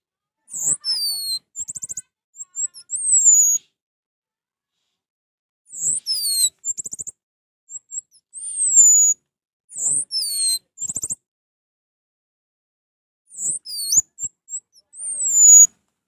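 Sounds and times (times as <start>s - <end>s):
thrush singing whistled phrases: 0.5s - 3.6s.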